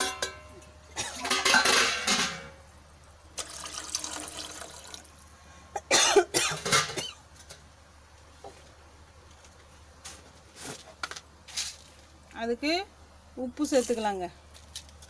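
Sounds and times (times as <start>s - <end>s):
water poured into a pot: 3.4s - 5.3s.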